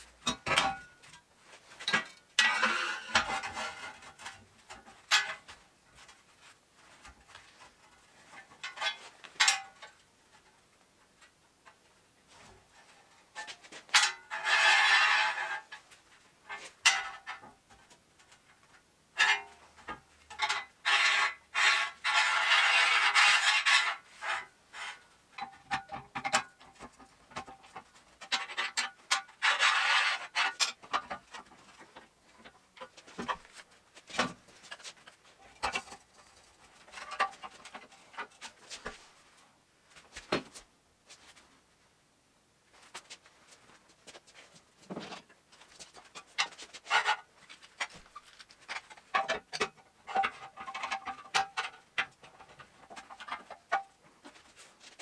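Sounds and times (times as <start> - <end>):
steel scraping on steel table: 14.0 - 15.7, 20.4 - 25.0.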